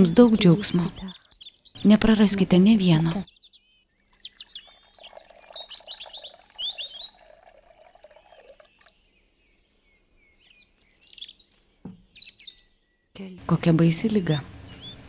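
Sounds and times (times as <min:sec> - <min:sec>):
small birds chirping: 0:00.0 - 0:15.0
milk pouring into a cup: 0:04.2 - 0:09.2.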